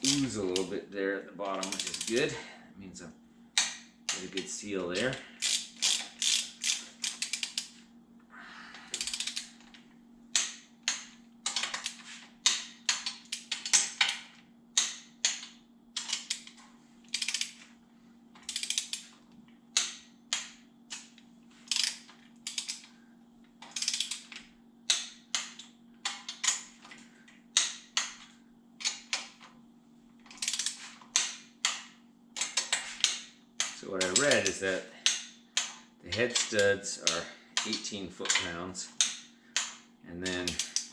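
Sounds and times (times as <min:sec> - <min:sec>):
steady low hum: 0:00.0 - 0:40.9
ratchet wrench clicking: 0:01.6 - 0:02.4, 0:05.0 - 0:07.8, 0:09.0 - 0:09.5, 0:14.8 - 0:17.6, 0:18.4 - 0:19.2, 0:21.7 - 0:22.9, 0:23.7 - 0:25.6, 0:30.3 - 0:31.8, 0:32.4 - 0:40.9.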